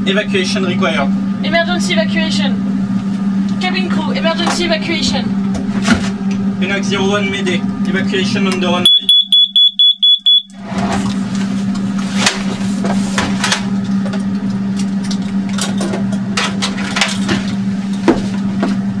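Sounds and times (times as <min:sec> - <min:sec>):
low cockpit hum: 0:00.0 - 0:19.0
rapid high-pitched alarm beeping: 0:08.8 - 0:10.5.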